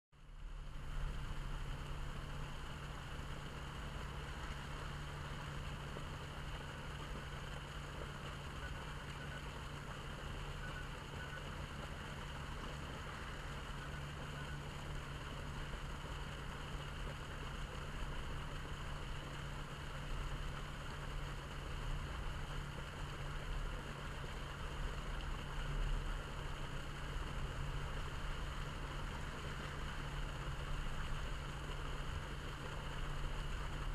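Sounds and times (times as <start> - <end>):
low rumble: 0.2 - 7.4
water gushing and splashing: 0.5 - 33.9.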